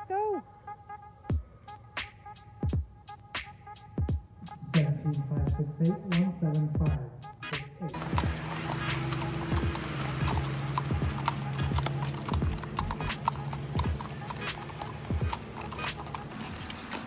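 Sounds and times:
music: 0.0 - 17.0
horse hooves clip-clopping on gravel: 7.9 - 17.0.

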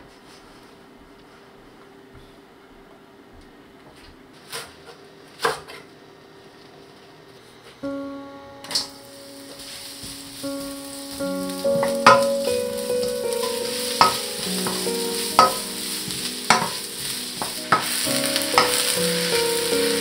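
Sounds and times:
vegetables sizzling in oil: 8.7 - 20.0.

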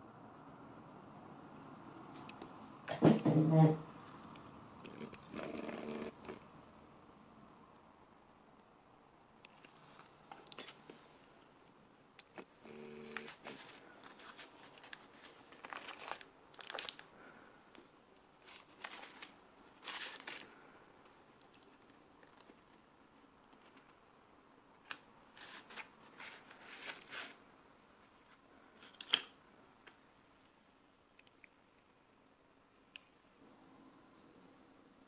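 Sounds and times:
paper and cardboard rustling: 13.1 - 17.2, 18.4 - 24.0, 24.9 - 27.4.

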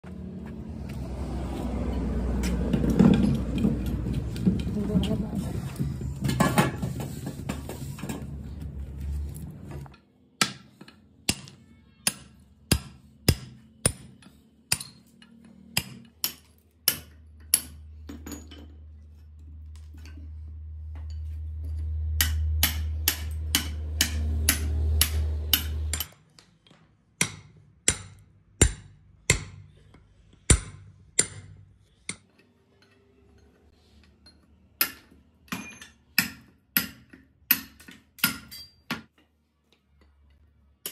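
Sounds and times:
hammer striking metal punch: 10.4 - 15.1, 22.2 - 26.2, 27.2 - 29.7, 30.5 - 32.2.

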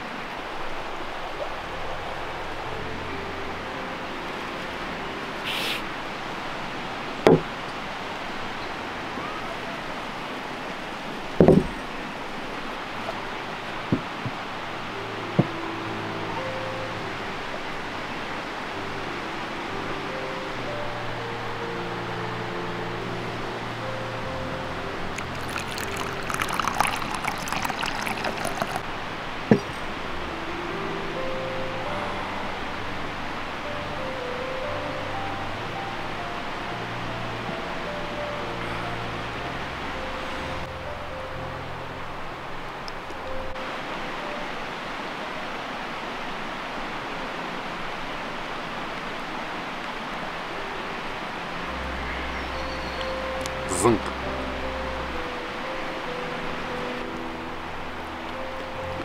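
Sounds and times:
brief hiss: 5.4 - 5.9
glass vase knocking on table: 7.3 - 7.5, 11.4 - 11.7, 25.2 - 28.8
tea pouring into a bowl: 25.1 - 28.8.

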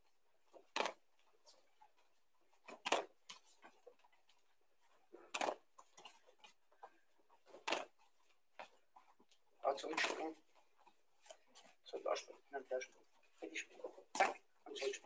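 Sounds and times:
bare feet thudding on mats: 0.4 - 4.2, 5.1 - 11.8.

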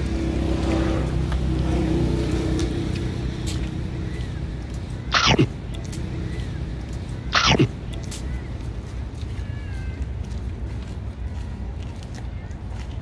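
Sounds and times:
vehicle engine running: 0.0 - 9.2.

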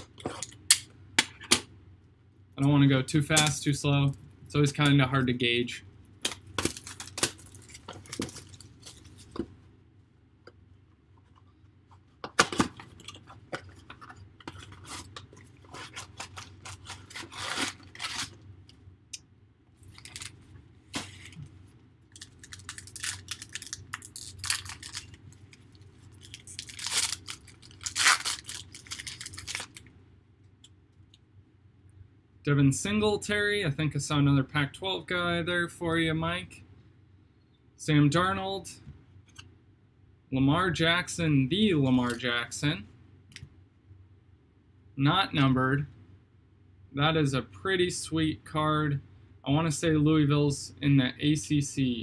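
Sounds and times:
packaging tearing: 6.2 - 9.1, 14.6 - 18.4, 19.8 - 20.3, 22.1 - 29.9
wrapper crinkling: 6.2 - 9.4, 12.6 - 18.4, 19.8 - 20.4, 22.1 - 29.9.

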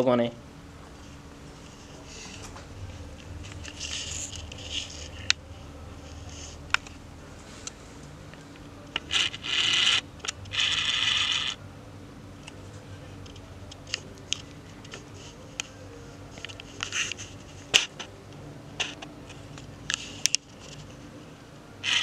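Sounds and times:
faint steady hum: 0.0 - 22.0
handling noise rubbing: 0.7 - 11.6, 13.3 - 18.2.

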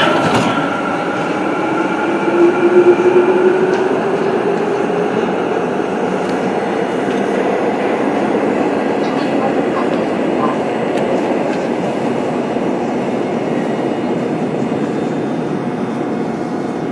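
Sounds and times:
train motor whine: 0.0 - 7.8
train wheels rumbling on rail: 0.0 - 16.9.

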